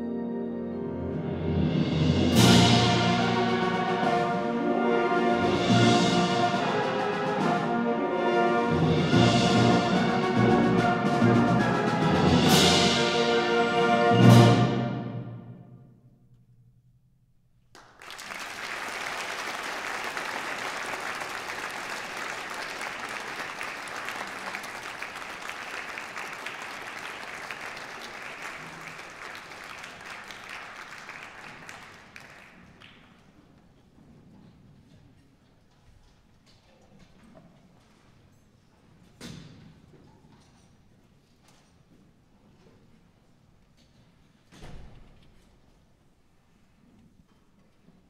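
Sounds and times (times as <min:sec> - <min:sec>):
brass and woodwind ensemble chord: 0:00.0 - 0:15.6
audience applause: 0:17.8 - 0:33.0.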